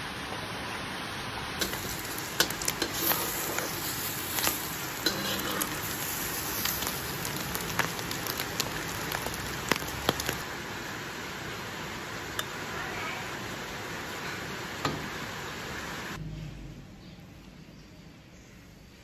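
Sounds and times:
egg sizzling in oil: 1.4 - 12.6
oil popping and crackling: 1.6 - 10.5.

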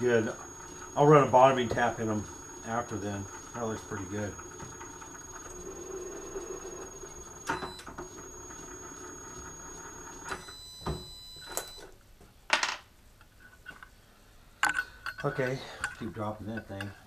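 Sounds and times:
steady low hum: 0.0 - 11.8
metal tools clinking and knocking: 14.6 - 17.0.

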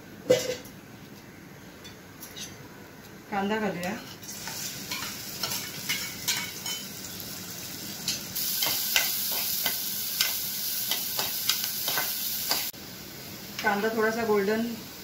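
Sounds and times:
onion sizzling in hot oil: 3.9 - 15.0.

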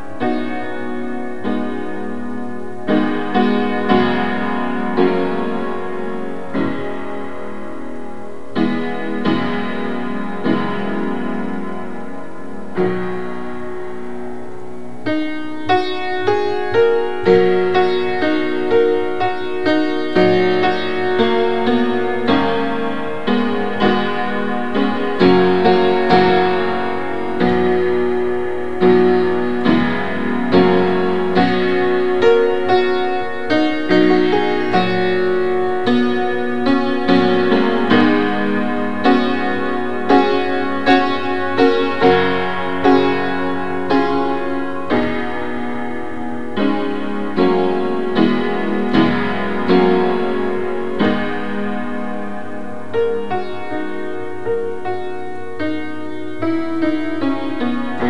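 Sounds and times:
slow dissonant piano chords: 0.0 - 58.0.

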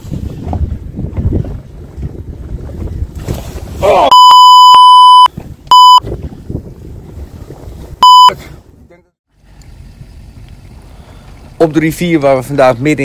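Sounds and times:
wind rumble on microphone: 0.0 - 4.0, 5.3 - 13.0
censor bleep: 4.1 - 6.0, 8.0 - 8.4.

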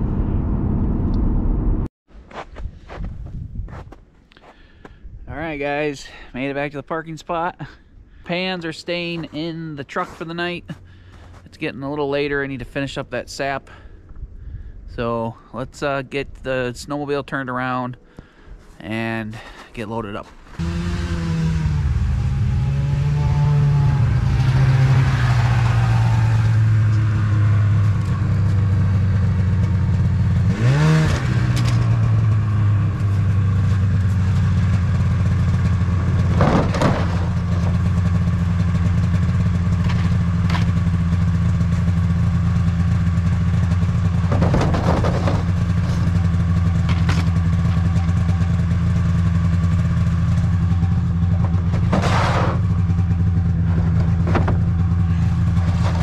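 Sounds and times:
engine revving: 20.6 - 56.0
snowmobile engine idling: 26.6 - 56.0.

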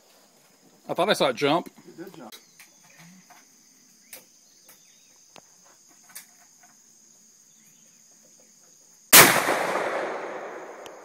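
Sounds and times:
insect trilling: 1.3 - 9.2
rifle shot: 9.1 - 11.0.

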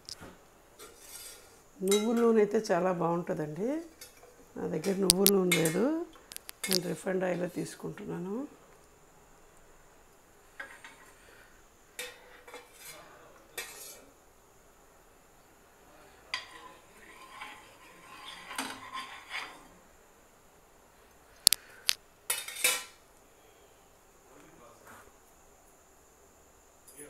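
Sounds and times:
metal cup and pan clinking: 22.3 - 23.0.

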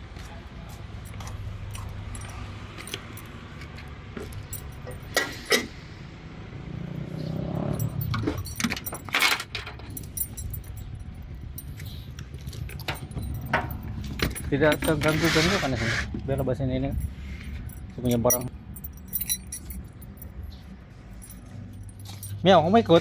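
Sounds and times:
vehicle engine rumble: 0.0 - 23.0
small metal items jingling: 4.3 - 5.2, 7.0 - 15.6, 16.2 - 23.0.

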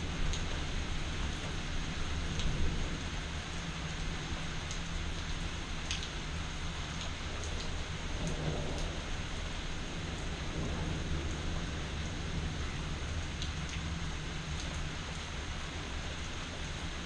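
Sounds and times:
steady rain: 0.0 - 17.0
thunder rumbling: 7.8 - 14.6.

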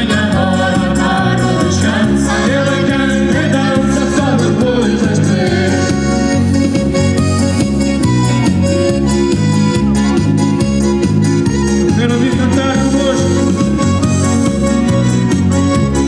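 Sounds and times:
person singing: 0.0 - 6.4
band playing dance music: 0.0 - 16.0.

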